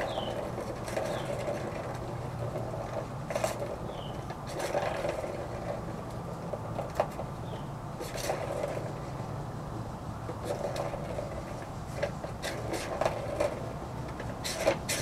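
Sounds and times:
bird chirps: 0.0s - 0.4s
plastic toy clattering and scraping: 0.0s - 9.3s, 10.3s - 15.0s.

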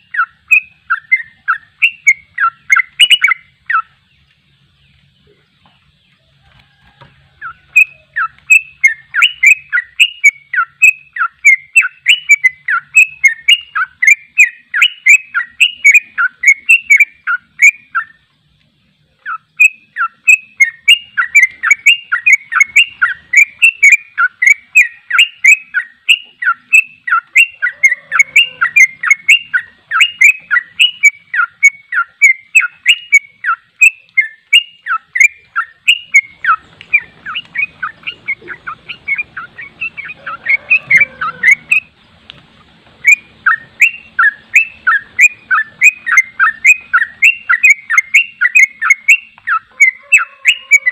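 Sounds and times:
bird chattering song: 0.0s - 50.9s.

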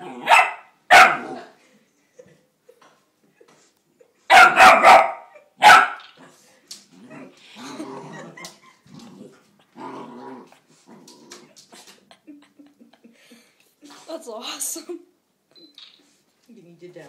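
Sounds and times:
puppy barking: 0.2s - 1.4s, 4.3s - 6.0s
puppy growling: 6.2s - 12.0s.

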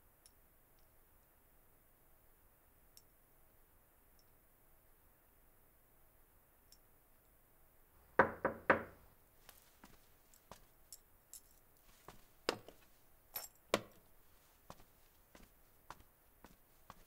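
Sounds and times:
knocks on wooden door: 8.2s - 8.9s
faint footsteps: 9.4s - 17.0s.

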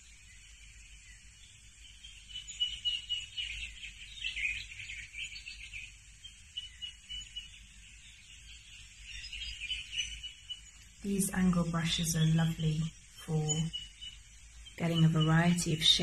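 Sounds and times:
birds chirping and singing: 0.0s - 16.0s
faint hiss: 0.0s - 16.0s.

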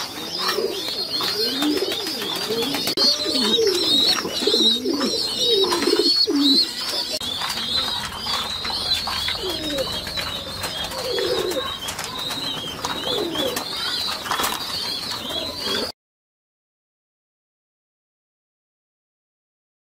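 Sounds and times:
pigeon coos: 0.0s - 15.9s.

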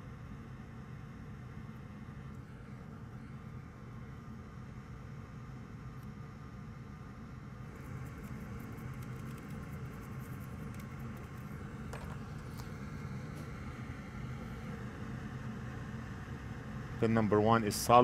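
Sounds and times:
workshop equipment hum: 0.0s - 18.0s
stiff brush scratching circuit board: 7.7s - 13.4s.

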